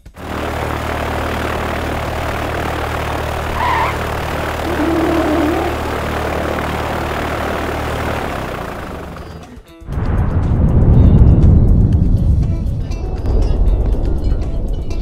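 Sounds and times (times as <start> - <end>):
propeller airplane engine droning: 0.0 - 9.6.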